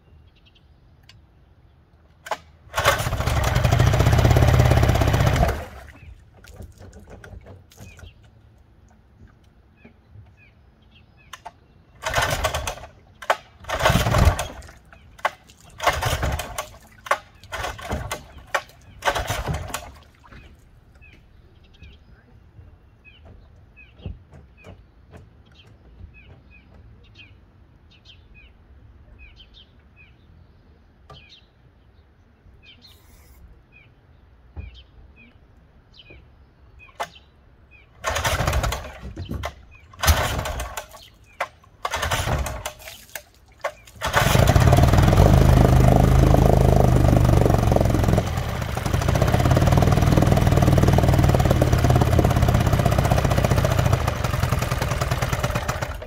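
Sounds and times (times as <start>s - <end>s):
outboard motor cranking: 2.2s - 8.2s, 12.0s - 21.1s, 38.0s - 56.0s
outboard motor running: 2.7s - 8.4s, 12.0s - 21.2s, 38.0s - 41.1s, 41.8s - 43.0s, 43.6s - 56.0s
small birds chirping: 5.8s - 12.0s, 14.6s - 15.8s, 19.9s - 38.0s, 38.8s - 40.0s, 40.8s - 41.8s, 42.8s - 44.1s.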